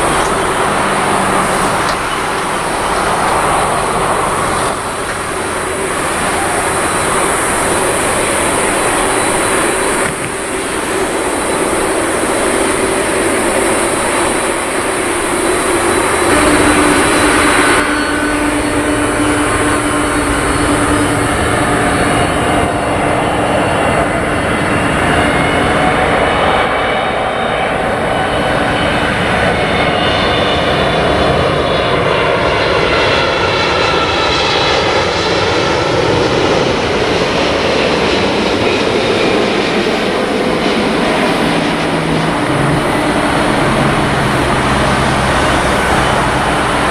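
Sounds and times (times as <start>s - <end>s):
distant jet: 0.0s - 46.9s
jet engines overhead: 0.0s - 46.9s
tones sweeping in pitch: 14.6s - 24.2s.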